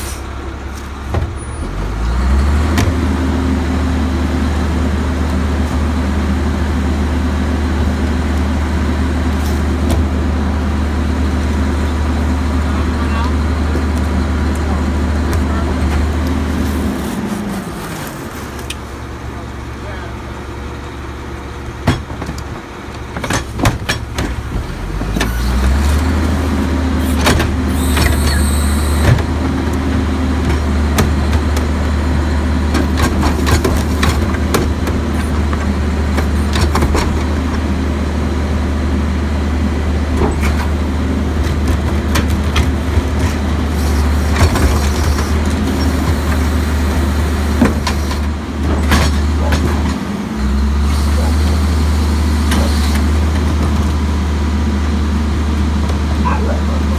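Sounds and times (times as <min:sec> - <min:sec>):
garbage truck diesel engine: 0:00.0 - 0:56.9.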